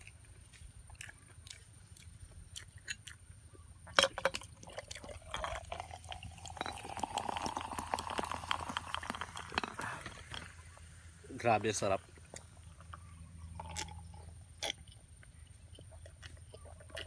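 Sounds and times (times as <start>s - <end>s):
cola pouring into glass: 4.7s - 10.7s
crackling fizz: 4.7s - 12.0s.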